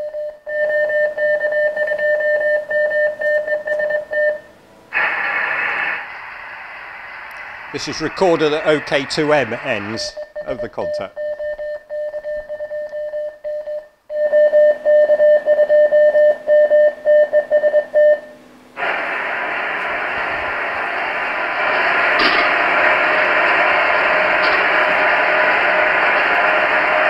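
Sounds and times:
radio receiver hiss: 4.7s - 11.1s, 18.4s - 27.0s
morse code tone: 9.3s - 18.4s.

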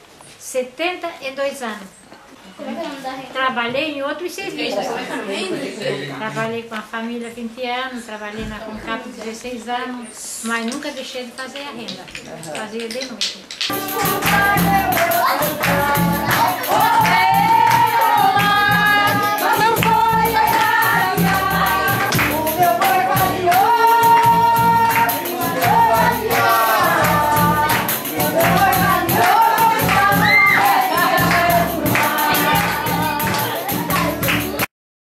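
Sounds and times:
bass drum beat: 13.7s - 34.6s
guitar: 13.7s - 34.7s
voices singing a melody: 13.7s - 34.7s.

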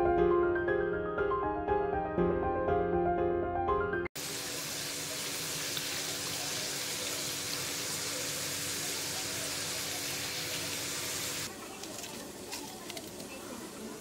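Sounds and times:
piano music: 0.0s - 4.1s
potato slices sizzling in oil: 4.2s - 14.0s.

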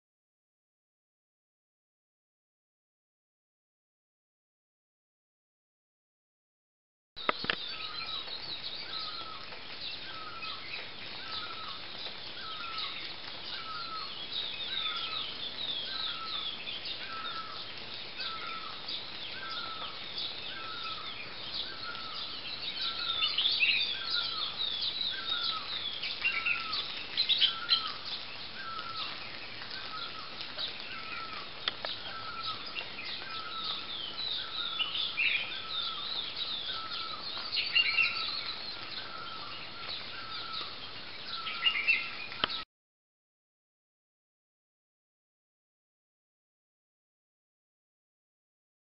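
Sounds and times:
birds chirping and twittering: 7.2s - 42.7s.

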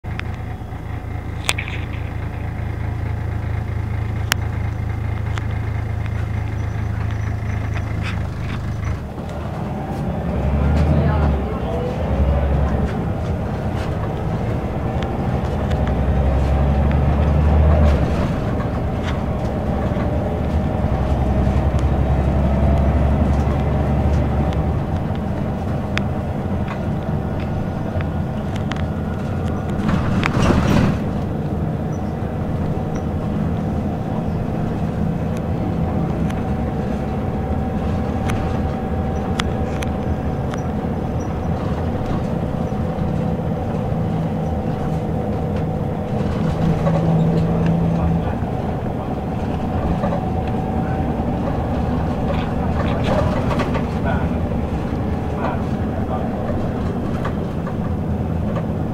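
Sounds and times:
bus engine drone: 0.0s - 58.9s
road noise: 0.0s - 58.9s
interior rattles: 12.6s - 58.9s.

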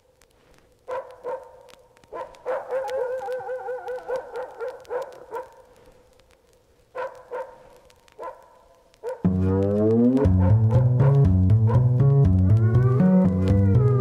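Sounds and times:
dog yipping and whimpering: 2.2s - 5.5s.

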